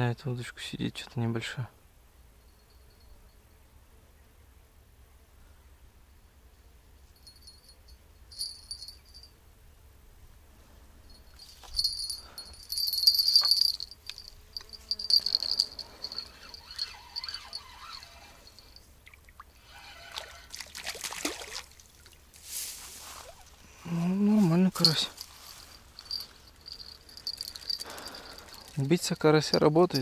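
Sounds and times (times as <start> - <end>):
insects chirping: 6.8 - 9.8, 11.0 - 30.0
fish splashing in water: 19.1 - 22.2.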